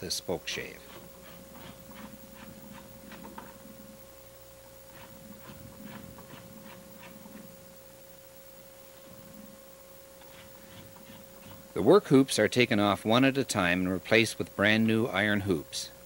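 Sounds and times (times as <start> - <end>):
steady hum: 0.0 - 16.0
spoke shave scraping wood: 0.5 - 4.0, 4.8 - 7.6, 10.2 - 11.9.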